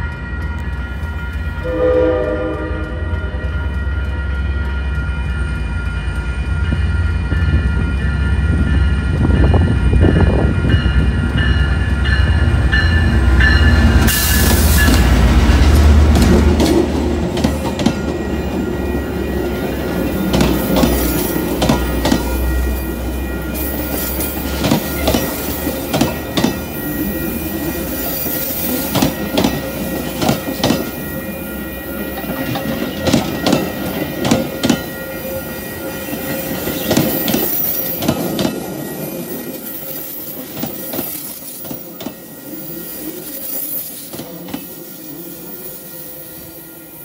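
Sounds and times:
wheels clicking over rail joints: 23.5s - 31.0s.

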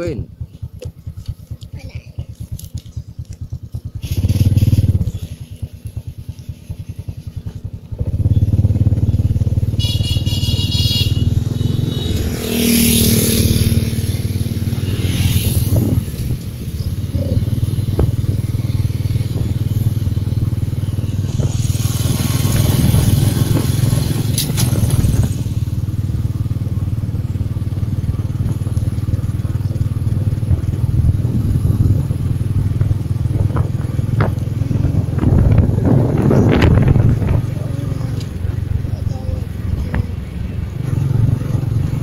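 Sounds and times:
motorbike running: 0.0s - 42.0s
truck passing: 2.6s - 42.0s
wind rumbling on microphone: 11.2s - 42.0s.

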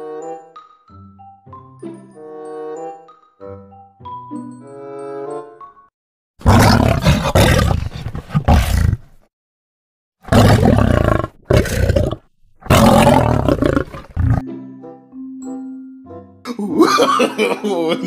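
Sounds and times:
tiger roars: 6.4s - 9.2s, 10.3s - 14.4s.

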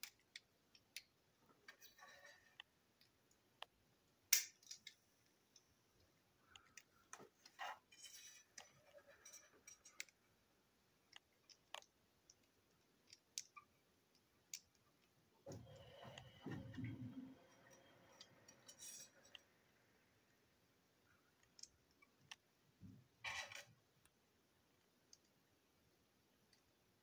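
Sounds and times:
plastic parts clicking: 11.1s - 15.2s.

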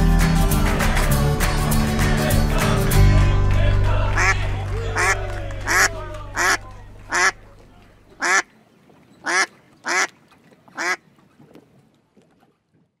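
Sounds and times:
ducks quacking: 4.1s - 8.5s, 9.2s - 11.0s.

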